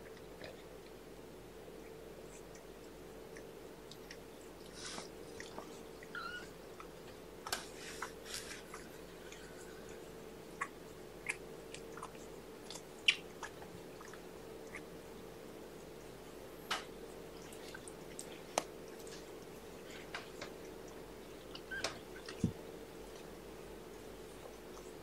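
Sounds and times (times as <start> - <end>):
faint hum: 0.0 - 25.0
cats rustling on bedding: 7.5 - 9.9.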